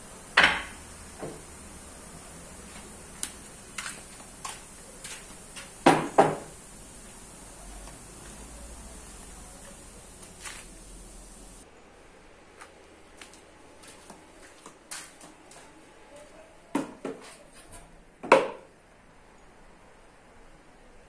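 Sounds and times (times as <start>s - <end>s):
wood and tools knocking on workbench: 0.4s - 1.5s, 5.8s - 6.5s, 16.8s - 17.2s, 18.2s - 18.7s.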